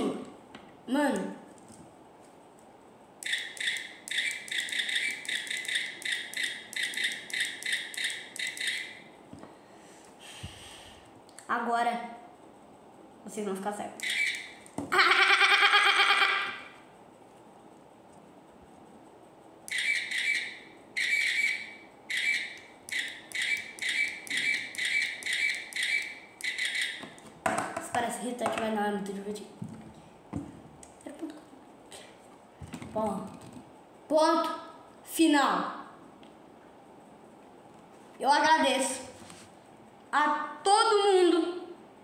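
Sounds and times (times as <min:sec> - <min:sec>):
electronic beeping clicks: 0:03.2 - 0:08.9.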